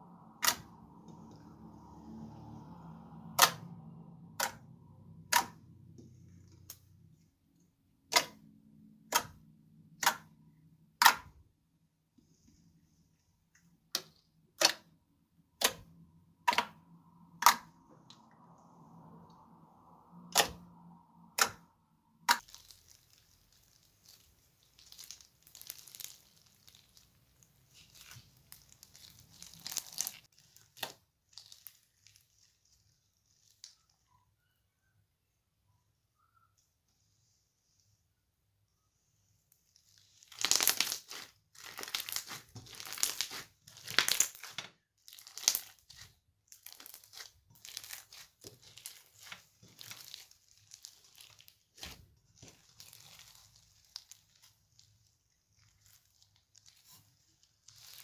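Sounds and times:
slime popping: 22.2s - 32.5s, 40.0s - 58.0s
beaded slime crackling: 22.2s - 34.1s, 39.5s - 58.0s.

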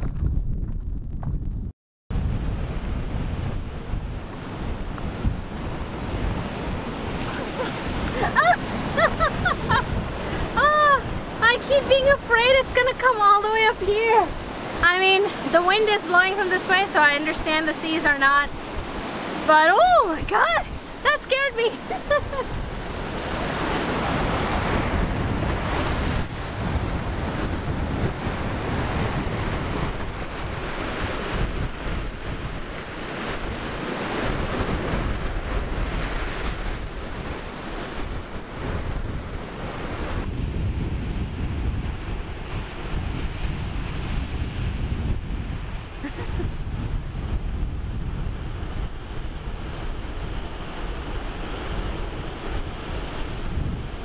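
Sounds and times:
wind buffeting microphone: 0.0s - 54.0s
surf crashing over rocks: 2.1s - 54.0s.

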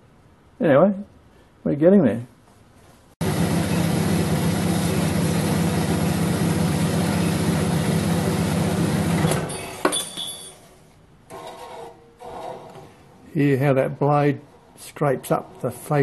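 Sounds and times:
motor running down: 3.2s - 9.5s
bandsaw cutting steel pipe: 11.3s - 13.0s.

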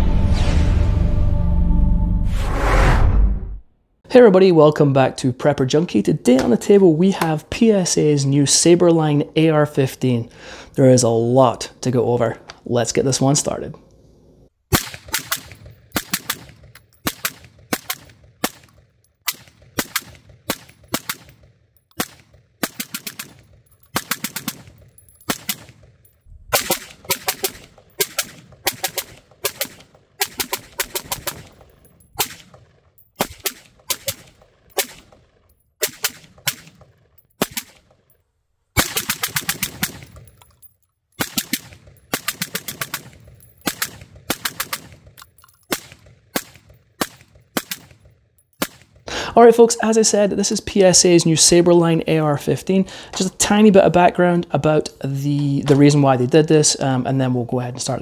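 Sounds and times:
rifle gunshots: 14.7s - 31.6s, 32.2s - 37.9s, 38.8s - 40.2s, 41.2s - 49.0s.

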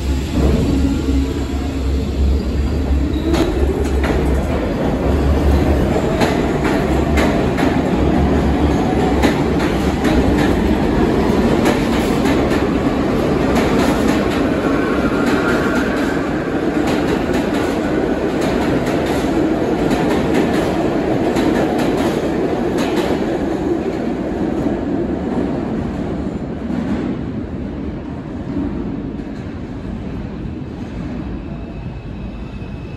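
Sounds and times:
train wheels rumbling on rails: 0.0s - 32.9s
clickety-clack over rail joints: 3.2s - 27.4s.

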